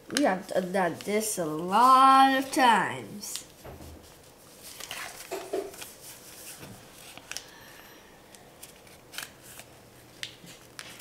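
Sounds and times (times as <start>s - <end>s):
paper being folded and creased: 3.3s - 7.5s, 8.6s - 11.0s.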